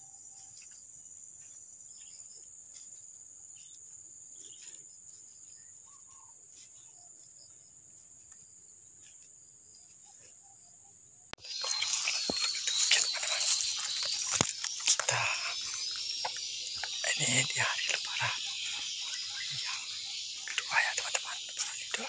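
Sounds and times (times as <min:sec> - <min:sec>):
rustles in dry undergrowth: 0:00.3 - 0:10.6, 0:11.4 - 0:22.0
high-pitched insect drone: 0:11.4 - 0:22.0.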